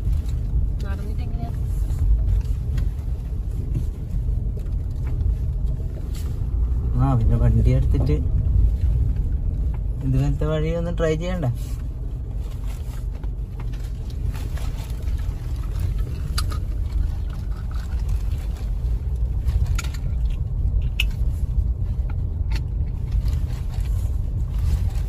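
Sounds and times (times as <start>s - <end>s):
car knocking and rattling: 0.0s - 25.0s
engine and tyres rumbling: 0.0s - 25.0s.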